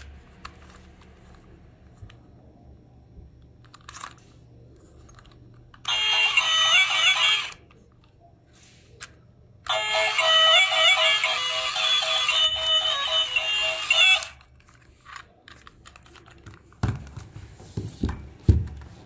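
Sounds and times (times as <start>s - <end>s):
toy beeping tune: 5.8s - 7.6s, 9.6s - 14.5s.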